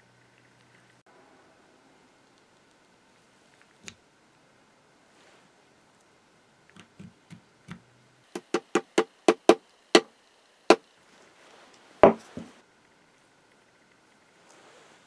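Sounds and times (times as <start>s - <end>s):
heavy thump: 12.0s - 12.5s
soft knocks: 12.0s - 12.6s.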